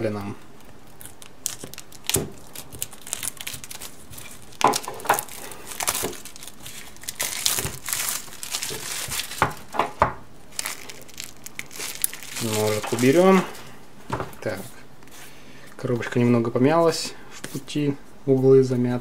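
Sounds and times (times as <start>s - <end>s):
plastic film crinkling: 0.0s - 13.8s
knife slitting plastic film: 0.9s - 9.8s, 10.5s - 13.5s.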